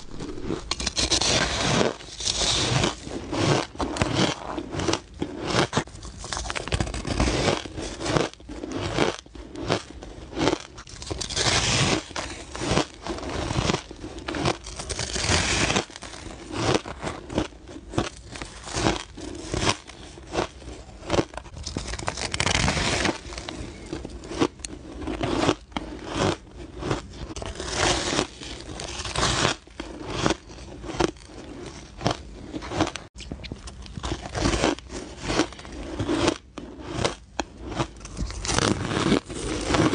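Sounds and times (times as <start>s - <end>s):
ice being bitten and chewed: 0.0s - 39.9s.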